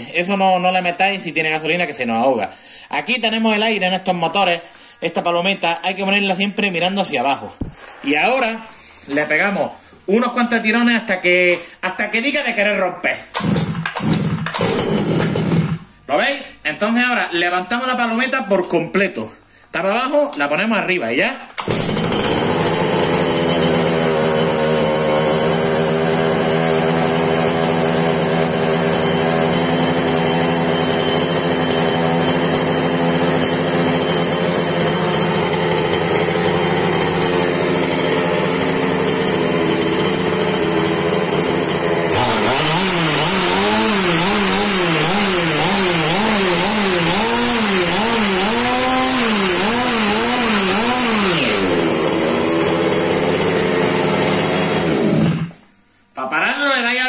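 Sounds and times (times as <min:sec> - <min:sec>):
two-stroke engine idling: 0:25.4 - 0:42.1.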